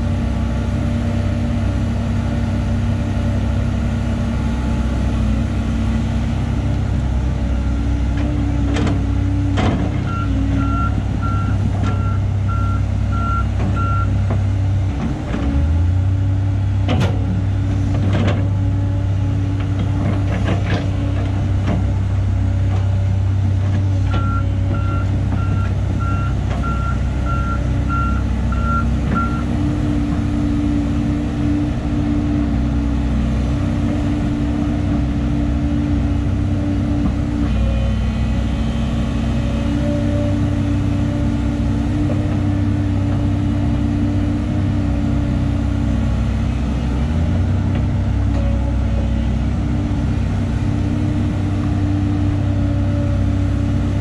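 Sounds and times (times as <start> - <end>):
excavator diesel engine running: 0.0 - 54.0.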